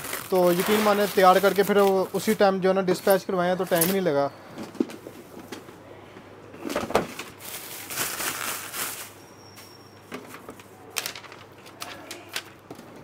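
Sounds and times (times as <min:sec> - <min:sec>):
plastic wrap rustling: 0:00.0 - 0:04.2, 0:06.6 - 0:12.7.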